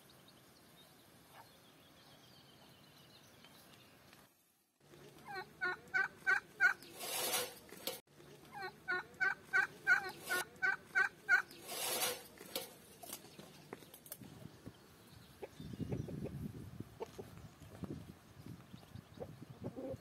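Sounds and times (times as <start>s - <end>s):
turkey calling: 5.2s - 7.5s, 8.4s - 12.6s.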